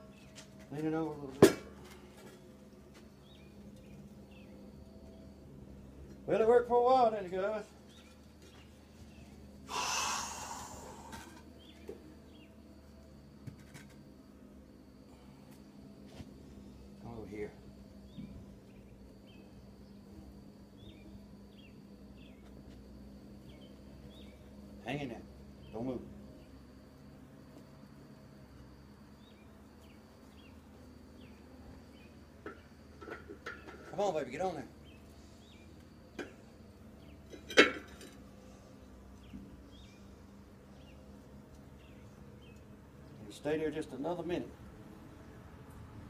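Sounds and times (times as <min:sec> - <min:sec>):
faint high-pitched whine: 0:00.0 - 0:46.0
low steady hum: 0:00.0 - 0:46.0.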